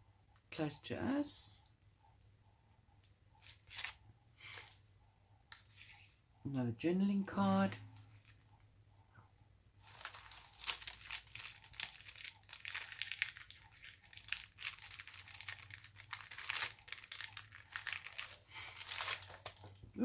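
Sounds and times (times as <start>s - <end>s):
paper rustling and crinkling: 3.4s - 4.0s, 8.0s - 8.5s, 9.8s - 19.8s.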